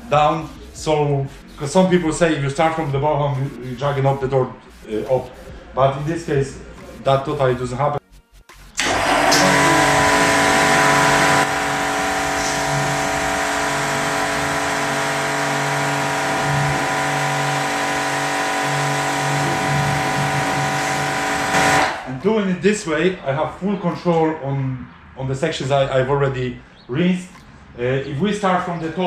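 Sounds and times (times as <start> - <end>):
pressure washer spraying: 0.0 - 22.1
motor and pump hum: 8.5 - 22.1.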